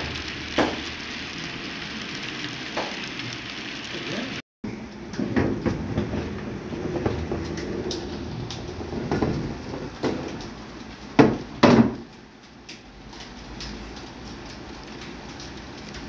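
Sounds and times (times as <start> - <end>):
model train rolling rumble: 5.5 - 11.0.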